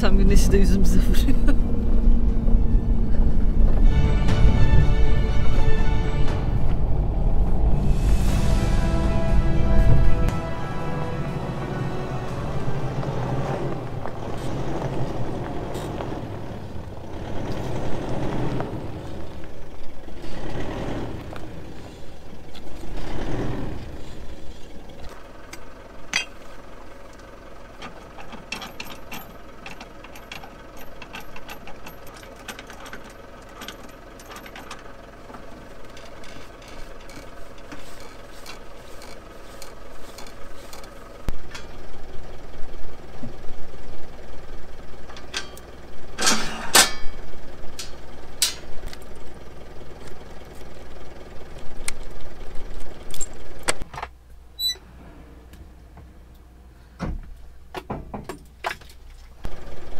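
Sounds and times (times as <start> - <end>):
engine rumble: 0.0 - 59.9
tyres rolling over gravel: 8.0 - 53.6
metal hitch clicks and knocks: 25.5 - 26.4, 27.8 - 41.7, 45.1 - 49.1.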